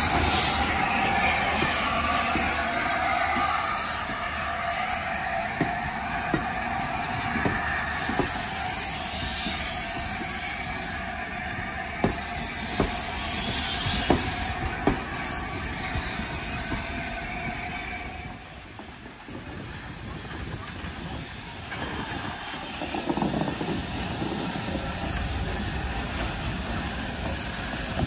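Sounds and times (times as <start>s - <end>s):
train rumbling on track: 0.0s - 28.0s.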